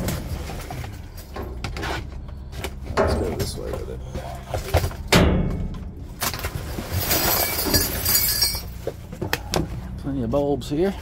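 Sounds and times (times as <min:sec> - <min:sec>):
steady low hum: 0:00.0 - 0:07.2
junk clunking in dumpster: 0:00.0 - 0:09.8
glass clattering and clinking: 0:06.8 - 0:08.8.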